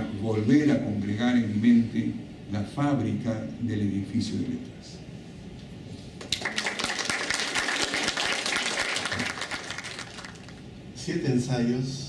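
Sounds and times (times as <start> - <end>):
hands clapping: 6.2 - 10.6.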